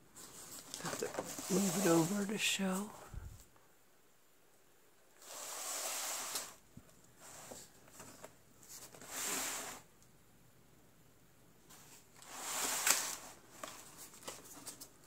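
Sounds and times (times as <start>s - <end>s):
paper rustling: 0.1s - 2.9s, 11.7s - 15.0s.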